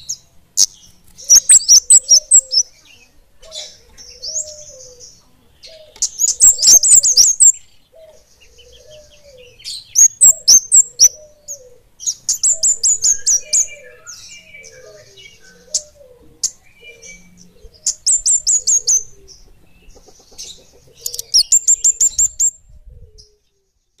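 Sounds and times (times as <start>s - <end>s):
bird singing high rapid notes: 0.0s - 2.8s, 6.0s - 7.8s, 9.6s - 11.2s, 21.0s - 22.6s.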